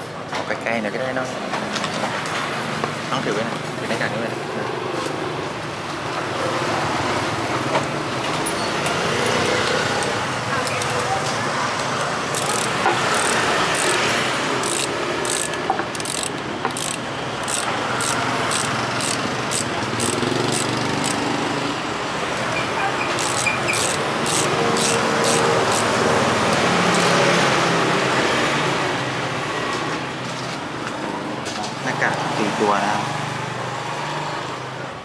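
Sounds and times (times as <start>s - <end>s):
street traffic noise: 0.0s - 35.0s
ratcheting screwdriver clicking: 11.8s - 21.2s, 23.1s - 25.9s, 26.5s - 27.2s.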